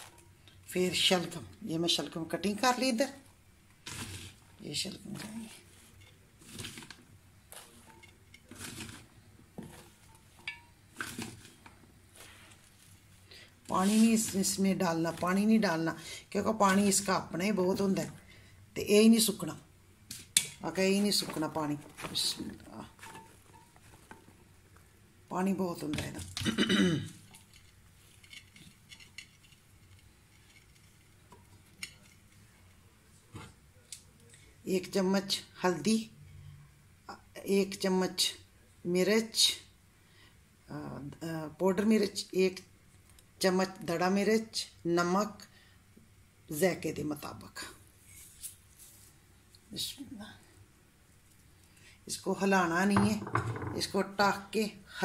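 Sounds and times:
vegetable chunks rustling in pot: 2.0 - 18.2, 18.9 - 26.4, 27.0 - 33.7.

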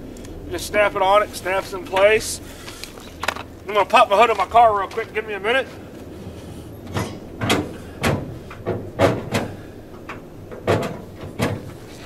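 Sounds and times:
car hood latch clunks and clicks: 6.9 - 11.8.

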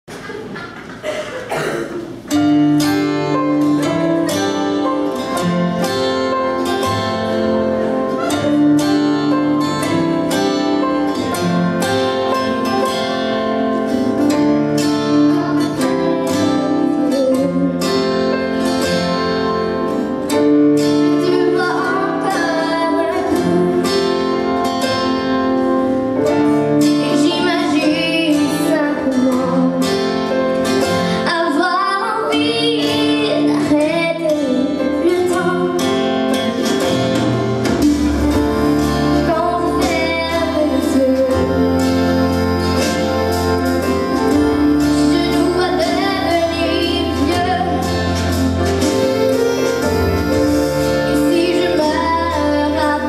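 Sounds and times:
plucked guitar: 0.1 - 53.0
woman singing into microphone: 21.0 - 24.5, 26.8 - 30.0, 30.9 - 37.1, 38.6 - 43.1, 43.8 - 48.9, 50.2 - 53.0.

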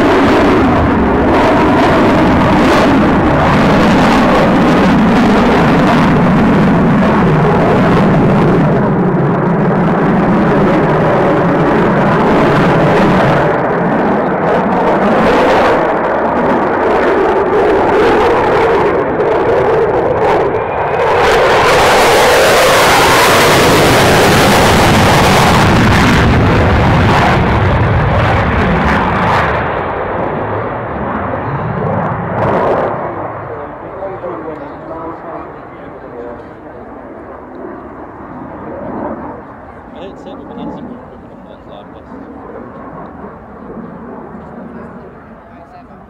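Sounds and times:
jet engine noise in flight: 0.0 - 46.0.

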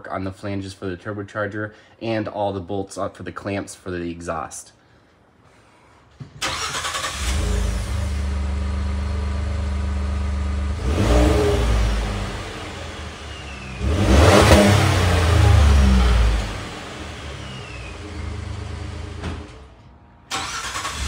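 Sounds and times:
truck engine idling and revving: 6.7 - 19.7.

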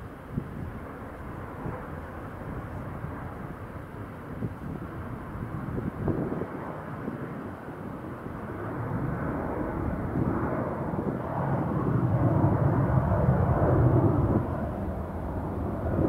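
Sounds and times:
jet airliner passing: 0.0 - 16.0.

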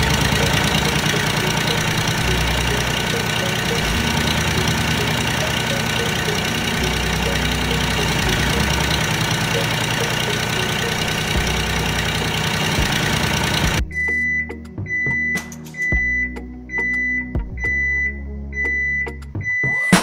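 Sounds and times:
engine idling with knocking beat: 0.0 - 13.9
high electronic beep: 0.0 - 20.0.

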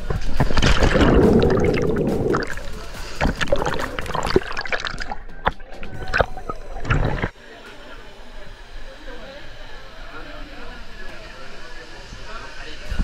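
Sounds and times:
underwater bubbling and gurgling: 0.0 - 7.4
heavy splash into water: 0.2 - 5.2
underwater knocks: 0.2 - 7.3.

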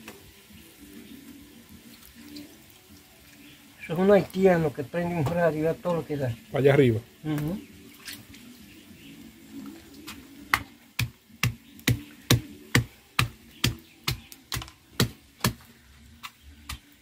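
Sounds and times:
wooden pestle pounding in mortar: 10.5 - 15.6.

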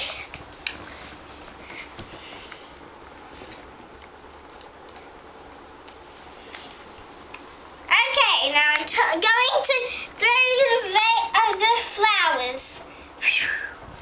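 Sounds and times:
faint rustles: 0.0 - 7.8.

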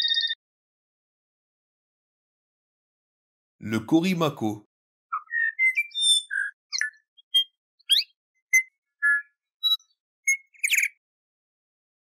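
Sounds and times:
bird singing whistled notes: 5.1 - 11.0.

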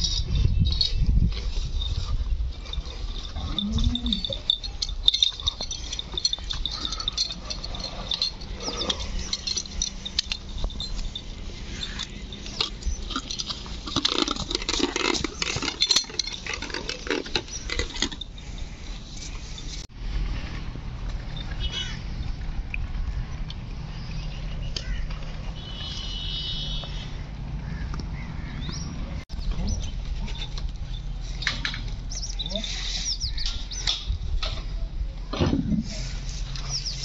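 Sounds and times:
animals stirring in pen: 1.3 - 19.6.

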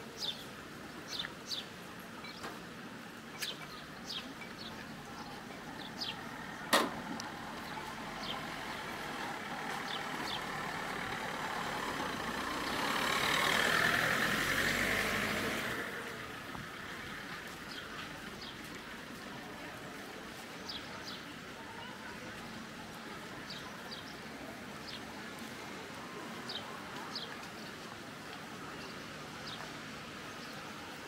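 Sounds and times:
small birds chirping: 3.3 - 6.7
motor vehicle passing: 5.8 - 17.3.

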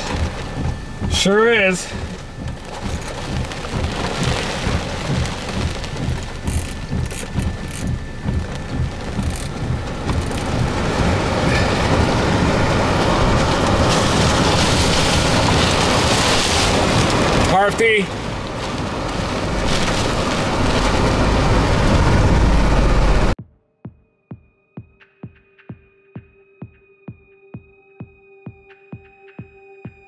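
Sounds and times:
gusting wind buffeting: 0.0 - 23.4
heavy rain battering a vehicle: 0.0 - 23.4.

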